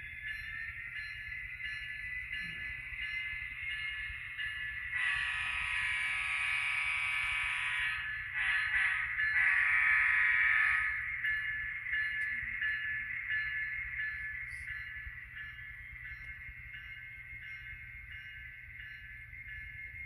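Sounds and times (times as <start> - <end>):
miniature train horn: 5.0 - 11.0.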